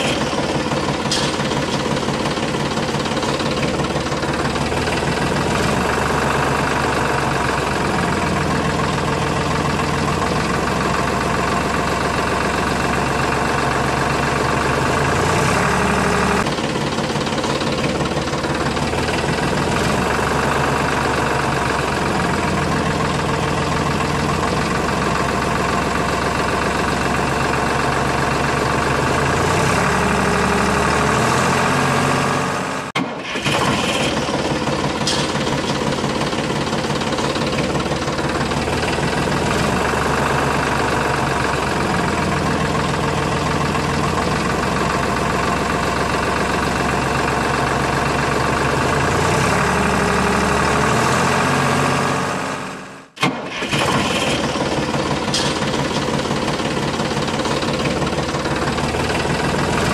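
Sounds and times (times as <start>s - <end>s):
tractor engine running: 0.0s - 59.9s.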